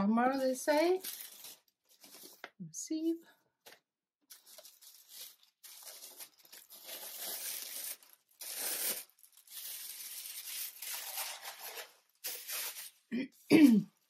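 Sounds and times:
wrapping paper rustling: 0.7 - 2.5, 4.3 - 13.1.

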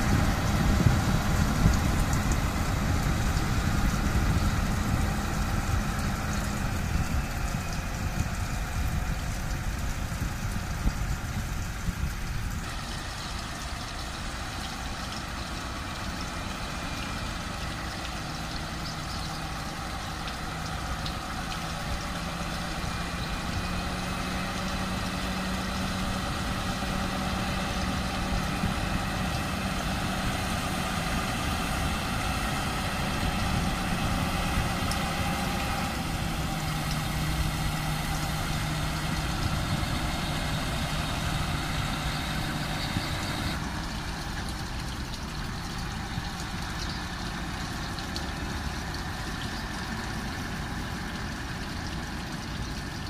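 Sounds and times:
diesel truck engine running: 0.0 - 53.0
water spray hissing: 12.6 - 43.6.

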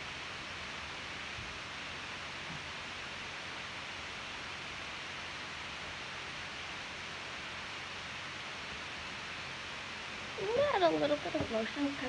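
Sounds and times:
faint low hum: 0.0 - 12.0
steady background hiss: 0.0 - 12.0.

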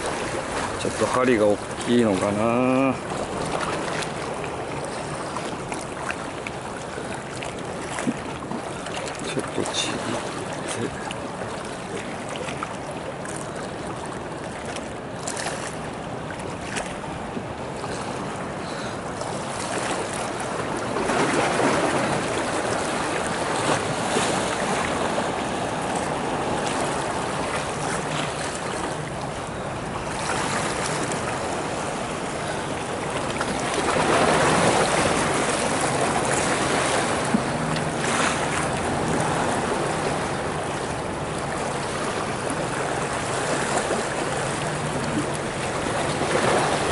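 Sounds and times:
small waves splashing on rocks: 0.0 - 46.9.

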